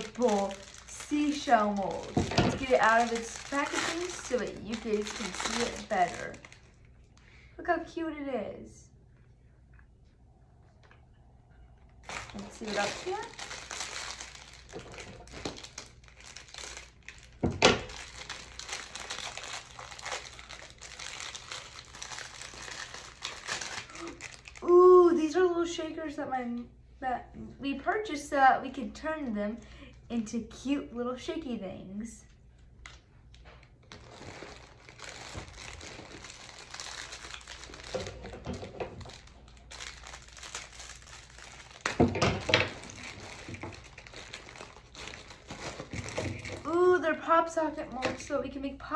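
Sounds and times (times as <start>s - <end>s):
plastic packaging crinkling: 0.0s - 7.4s, 11.9s - 24.9s, 32.8s - 47.0s.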